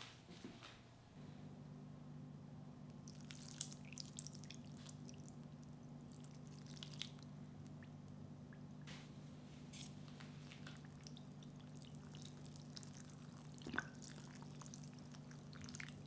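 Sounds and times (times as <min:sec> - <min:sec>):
steady low hum: 0:00.0 - 0:16.0
liquid dripping and splattering: 0:03.0 - 0:08.7, 0:10.6 - 0:16.0.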